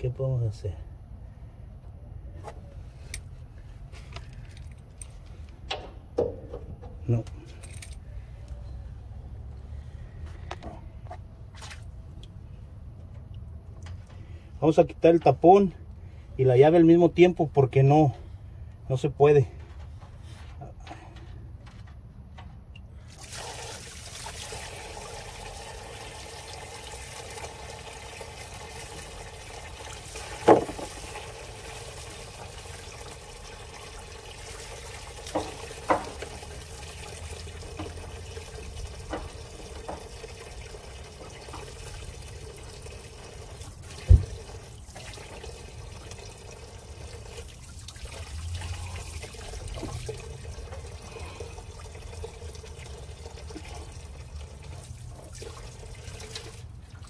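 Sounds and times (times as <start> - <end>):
fuel pouring into a tub: 22.9 - 57.0
sharp knocks: 30.4 - 30.9.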